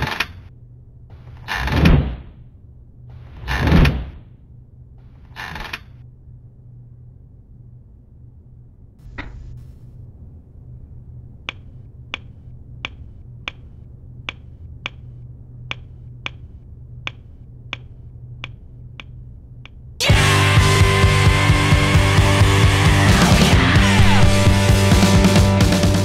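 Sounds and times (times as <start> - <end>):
low steady hum: 0.0 - 21.1
sharp clicks: 11.4 - 19.8
loud rock music: 20.0 - 26.0.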